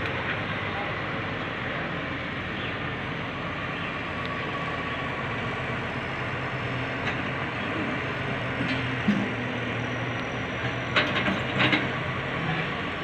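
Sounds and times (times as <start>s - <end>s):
excavator diesel engine running: 0.0s - 13.0s.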